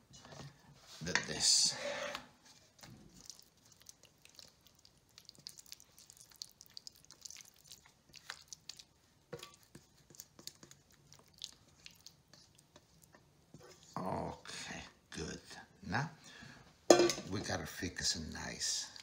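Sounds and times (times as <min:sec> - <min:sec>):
wet squishing and scraping: 0:01.8 - 0:14.0.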